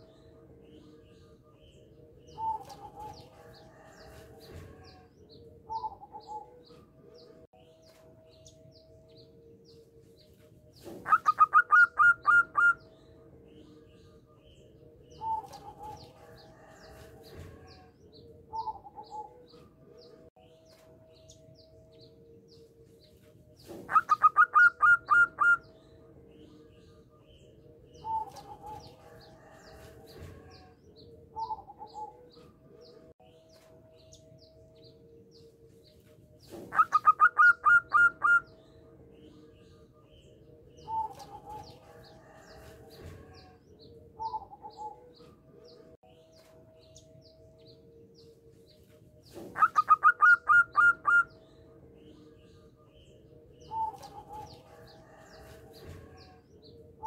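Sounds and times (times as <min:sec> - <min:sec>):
dove cooing: 0:02.3 - 0:05.1, 0:05.7 - 0:06.7, 0:10.8 - 0:12.9, 0:18.5 - 0:19.5, 0:23.7 - 0:25.7, 0:28.0 - 0:30.7, 0:31.3 - 0:32.3, 0:36.5 - 0:38.5, 0:40.8 - 0:42.5, 0:44.2 - 0:45.2, 0:49.3 - 0:51.4.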